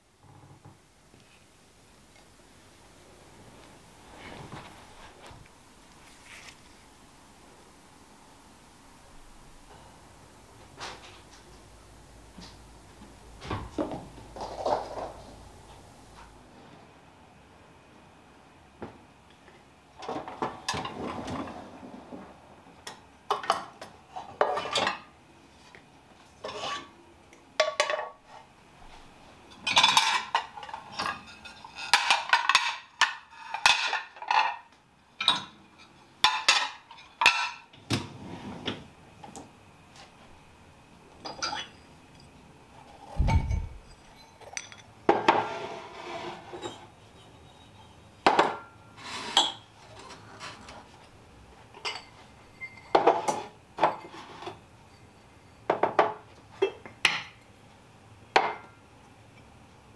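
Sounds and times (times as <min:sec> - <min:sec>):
dishes and glasses clinking: 0:29.5 - 0:37.7, 0:41.2 - 0:42.3, 0:43.0 - 0:45.5, 0:46.5 - 0:49.7, 0:51.8 - 0:57.4.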